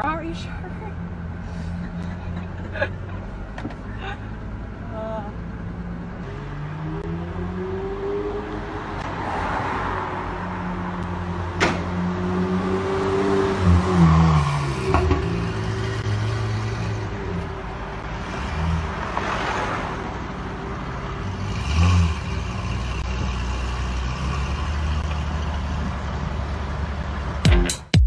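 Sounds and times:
car engine pulling away: 5.6s - 27.4s.

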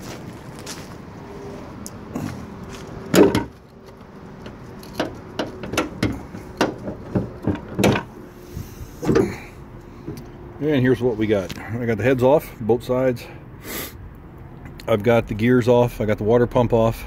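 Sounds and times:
car hood being raised: 3.1s - 3.6s, 4.4s - 10.3s
metallic clicks from latch and hinges: 3.1s - 8.1s.

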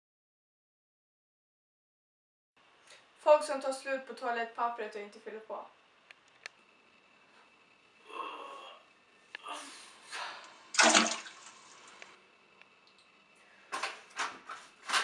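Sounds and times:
person sighing heavily: 8.0s - 8.8s, 9.4s - 10.5s.

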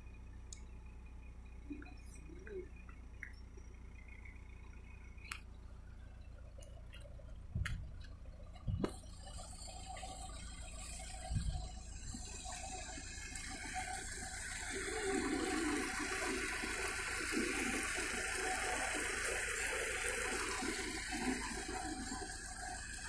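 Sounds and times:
water flowing fast: 12.0s - 23.0s.

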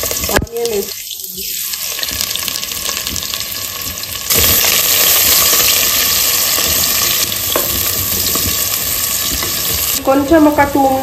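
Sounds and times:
onions sizzling in hot oil: 0.0s - 11.0s
wooden spoon stirring: 5.0s - 10.1s.

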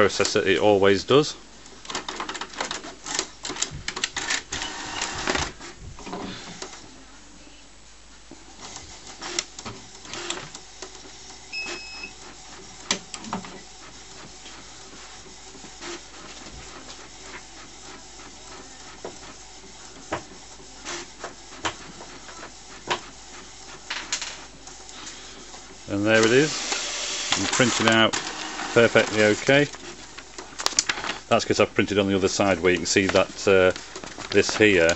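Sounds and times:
printer clicks and clacks: 1.7s - 5.7s, 8.6s - 31.3s, 32.0s - 34.9s
paper feeding through printer: 1.7s - 6.9s, 8.5s - 34.9s
printer mechanical whirr: 1.7s - 6.9s, 8.4s - 34.9s
printer carriage shuttling: 26.0s - 31.2s.

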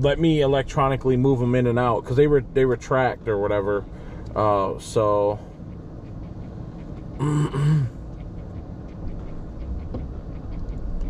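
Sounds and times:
car engine idling: 0.0s - 11.0s
man's short vocal sound: 7.2s - 7.9s.

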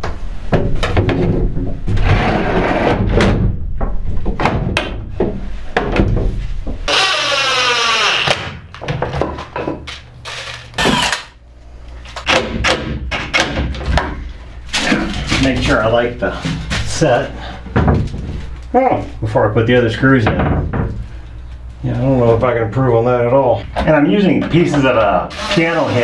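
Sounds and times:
cordless drill whirring: 6.9s - 8.4s, 10.8s - 11.3s.

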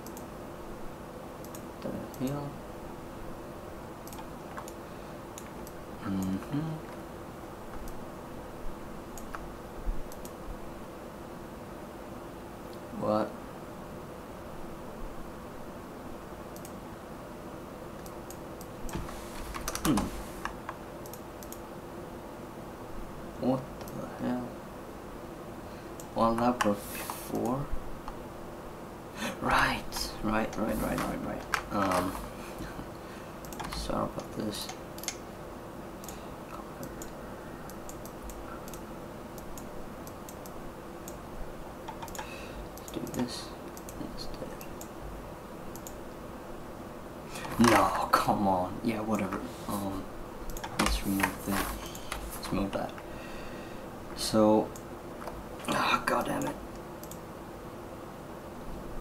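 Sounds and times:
steady low hum: 0.0s - 59.0s
mouse and keyboard clicks: 4.0s - 4.8s, 33.4s - 35.2s, 41.9s - 44.0s, 45.8s - 46.0s
keyboard keys clicking: 18.0s - 21.6s, 33.4s - 35.2s, 41.9s - 44.0s.

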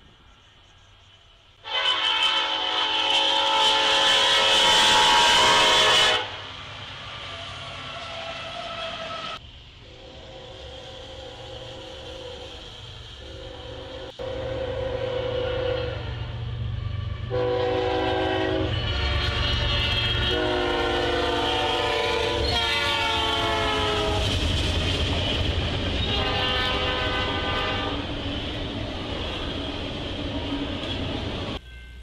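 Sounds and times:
train rumbling and clattering: 0.0s - 32.0s
locomotive air horn blasts: 1.6s - 6.5s, 7.8s - 24.4s, 26.0s - 28.1s.

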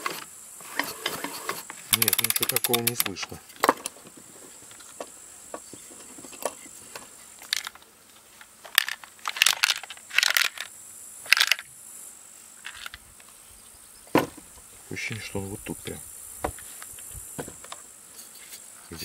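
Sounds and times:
part clattering inside chainsaw: 1.9s - 3.9s
plastic chainsaw housing knocking: 2.0s - 3.2s.

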